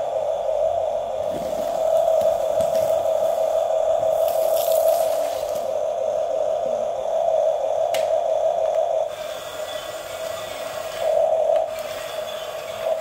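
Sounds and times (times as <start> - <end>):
toy motors whining: 9.1 - 13.0.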